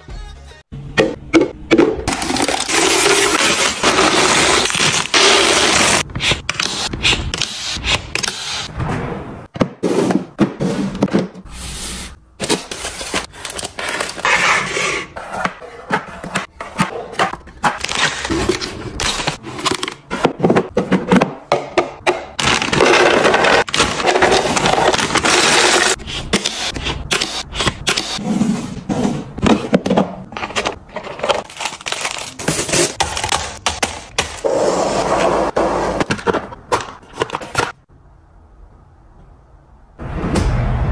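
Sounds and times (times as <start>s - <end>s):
snacks rattling into plastic containers: 22.3s - 26.0s, 30.3s - 34.2s.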